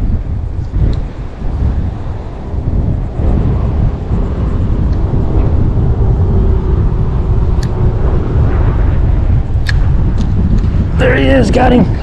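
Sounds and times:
wind buffeting microphone: 0:00.0 - 0:12.0
sharp click: 0:09.6 - 0:10.7.

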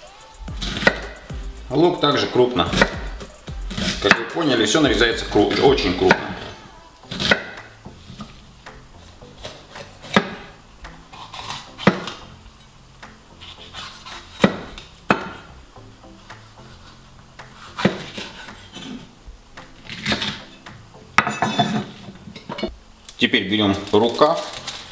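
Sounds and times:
knife cutting vegetables: 0:09.4 - 0:10.5, 0:11.1 - 0:12.3, 0:13.4 - 0:15.5, 0:16.3 - 0:19.1, 0:19.8 - 0:20.7.

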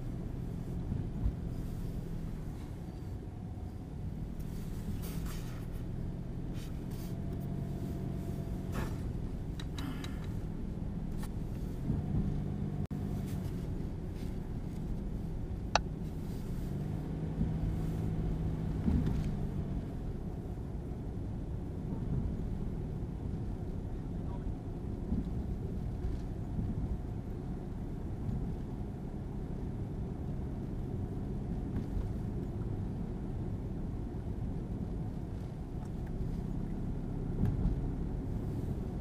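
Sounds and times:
car engine hum: 0:00.0 - 0:39.0
road noise inside car: 0:00.0 - 0:39.0
light ticks: 0:09.5 - 0:10.4.

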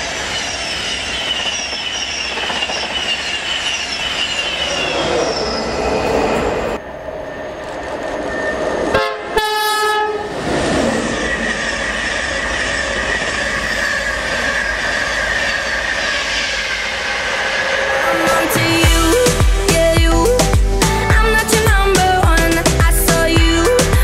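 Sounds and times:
train wheels rushing on rails: 0:00.0 - 0:19.9
high whine: 0:00.0 - 0:24.0
two-note train horn: 0:08.9 - 0:10.3.

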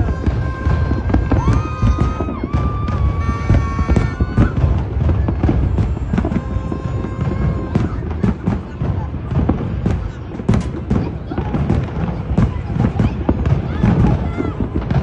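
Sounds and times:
fireworks booming and crackling: 0:00.0 - 0:15.0.

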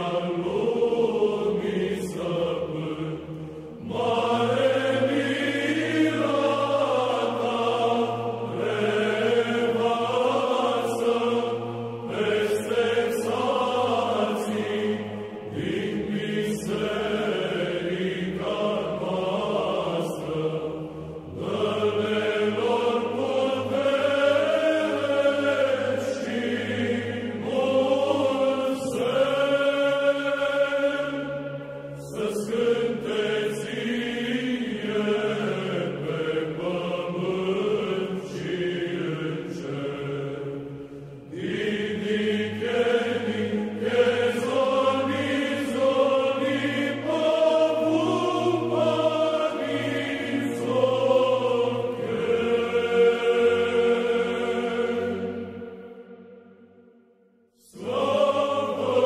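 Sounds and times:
voices chanting a slow melody: 0:00.0 - 0:59.0.

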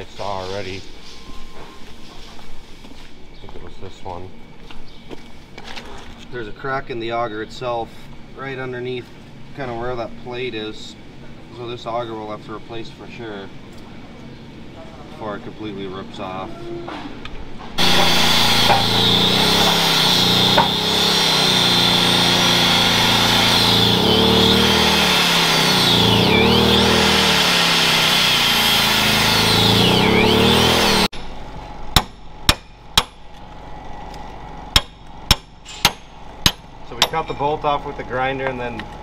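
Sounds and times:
angle grinder cutting metal: 0:17.8 - 0:31.1.

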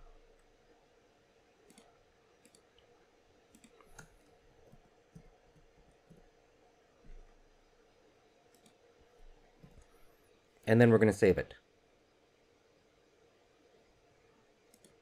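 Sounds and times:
keyboard and mouse clicks: 0:01.7 - 0:02.9, 0:03.5 - 0:06.3, 0:08.5 - 0:08.8, 0:14.7 - 0:15.0.

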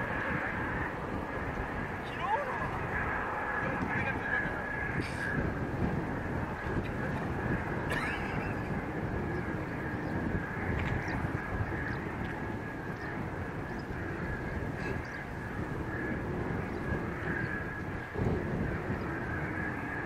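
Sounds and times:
distant jet engines rumbling: 0:00.0 - 0:20.0
bird calls: 0:06.3 - 0:20.0.

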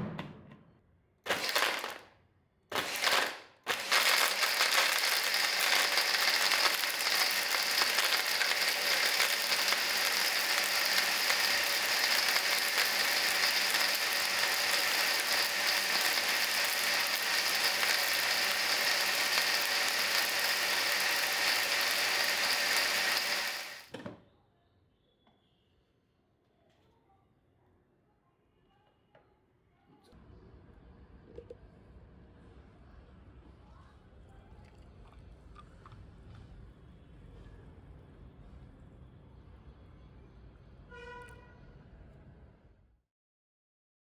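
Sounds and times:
blender running: 0:01.3 - 0:02.0, 0:02.7 - 0:23.9.

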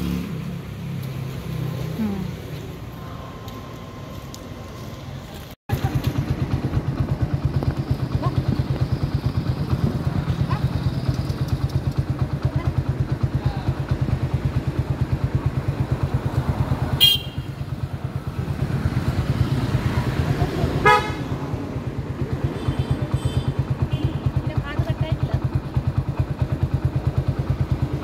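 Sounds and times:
engine idling: 0:05.7 - 0:18.7, 0:20.8 - 0:28.0
vehicle horn toots: 0:17.0 - 0:17.6, 0:20.8 - 0:21.3, 0:22.5 - 0:24.3.

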